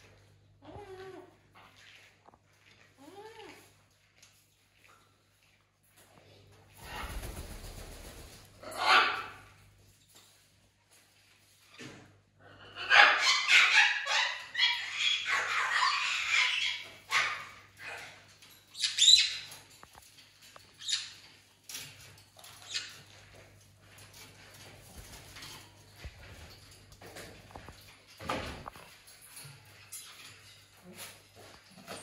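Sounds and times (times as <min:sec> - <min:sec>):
parrots squawking: 0:08.6 - 0:09.4, 0:12.6 - 0:18.0.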